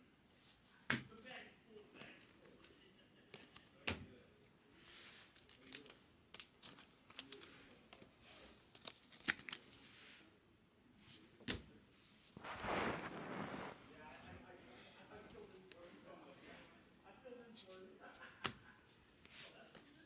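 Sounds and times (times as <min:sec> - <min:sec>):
cards rustling: 0:05.1 - 0:09.8
cards clicking on cards: 0:08.7 - 0:09.6.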